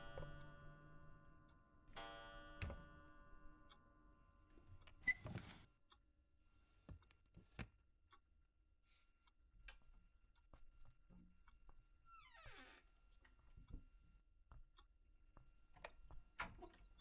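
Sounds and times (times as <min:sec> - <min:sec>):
ringing chime strikes: 0:00.0 - 0:04.2.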